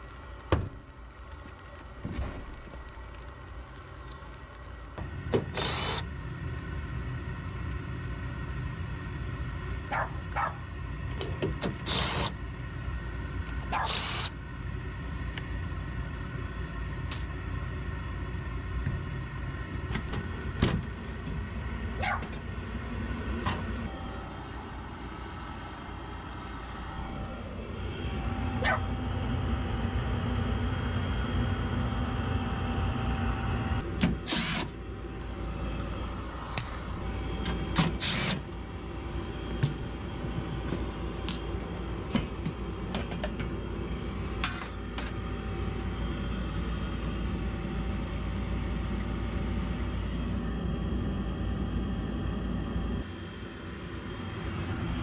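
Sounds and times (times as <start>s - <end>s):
impact driver whirring: 5.3s - 6.1s, 11.6s - 12.4s, 13.7s - 14.4s, 33.8s - 34.8s, 37.3s - 38.6s.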